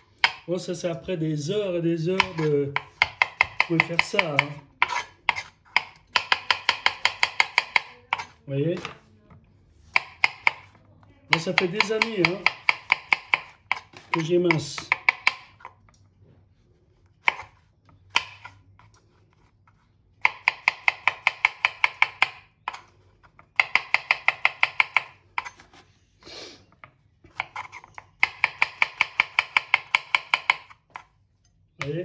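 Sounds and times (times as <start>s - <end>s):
knife tapping on wooden board: 0.2s - 0.5s, 2.2s - 9.0s, 9.9s - 15.7s, 17.2s - 17.5s, 18.1s - 18.5s, 20.2s - 25.6s, 27.3s - 31.1s.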